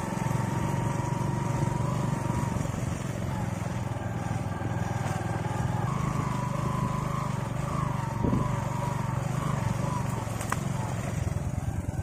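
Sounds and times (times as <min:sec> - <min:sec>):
small motorcycle engine running: 0:00.0 - 0:12.0.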